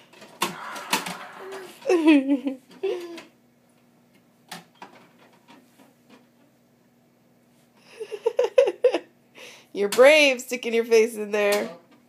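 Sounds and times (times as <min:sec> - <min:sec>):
faint steady hum: 0:00.0 - 0:12.0
giggling: 0:01.6 - 0:03.3.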